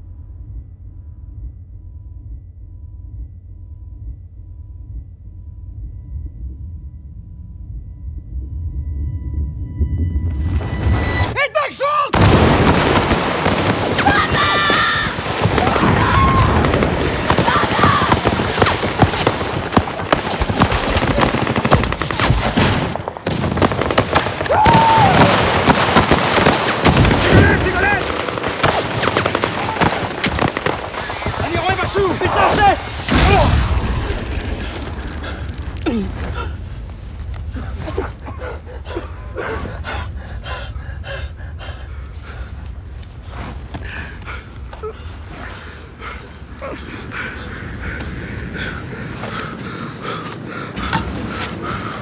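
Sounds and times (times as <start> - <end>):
low steady rumble: 0.0 - 11.3
rifle gunfire: 16.6 - 31.4
man gasping and groaning: 35.3 - 36.7.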